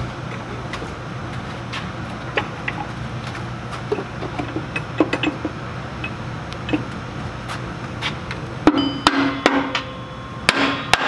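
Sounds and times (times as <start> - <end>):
metal clicks and knocks: 3.9 - 5.5.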